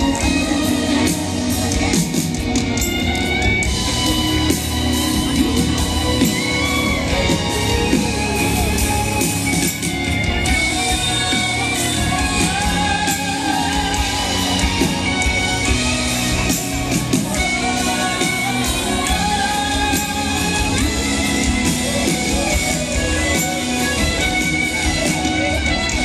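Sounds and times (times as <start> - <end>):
woman singing: 0.0 - 2.1, 10.4 - 15.6, 17.3 - 24.0
electric guitar: 0.0 - 26.0
keyboard: 0.0 - 26.0
live pop band playing: 0.0 - 26.0
violin: 0.0 - 26.0.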